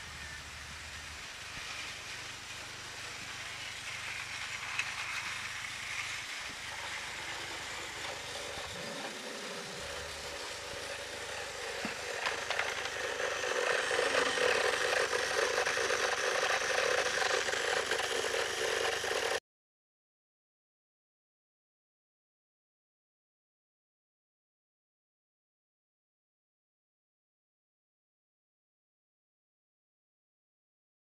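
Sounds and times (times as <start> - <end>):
rattling of toy train wheels: 0.0 - 19.4
toy train motor whir: 0.0 - 19.4.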